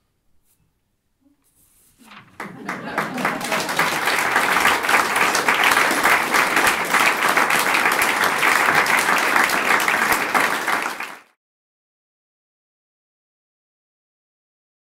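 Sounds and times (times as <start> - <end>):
audience applauding: 2.0 - 11.4.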